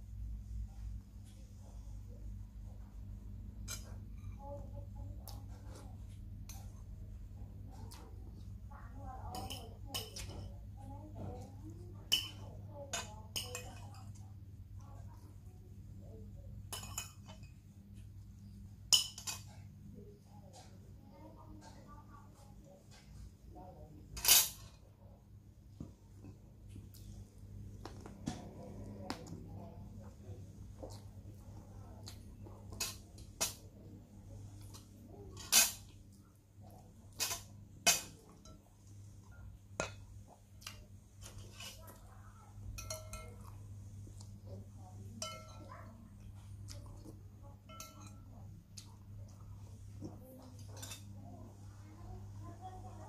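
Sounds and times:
spoon clinking on ceramic plates: 12.1 - 14.2, 16.7 - 17.6, 18.9 - 19.7, 42.6 - 43.6, 45.1 - 45.8, 47.6 - 48.4, 50.4 - 51.1.

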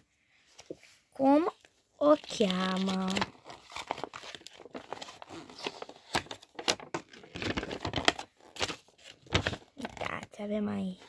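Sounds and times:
glossy paper crinkling: 1.6 - 10.3.

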